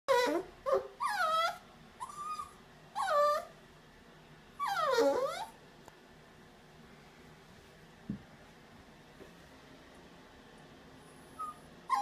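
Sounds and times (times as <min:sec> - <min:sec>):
puppy whining: 0:00.1 - 0:03.6, 0:04.6 - 0:05.6, 0:11.1 - 0:12.0.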